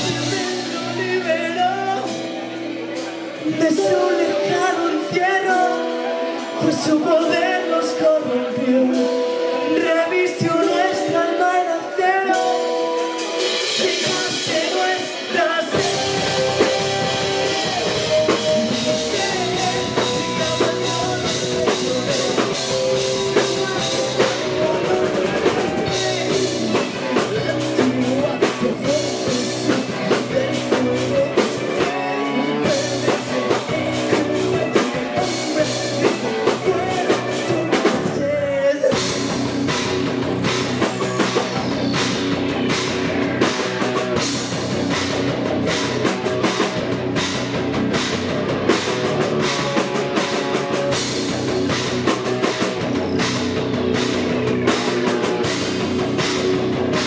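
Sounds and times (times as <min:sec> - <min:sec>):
man singing: 0:00.0 - 0:44.6
drum kit: 0:00.0 - 0:57.0
electric guitar: 0:00.0 - 0:57.0
keyboards: 0:00.0 - 0:57.0.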